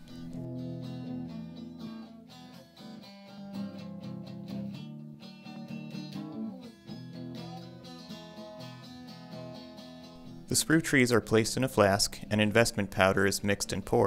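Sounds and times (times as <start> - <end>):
guitar picked and strummed: 0.0 - 14.0.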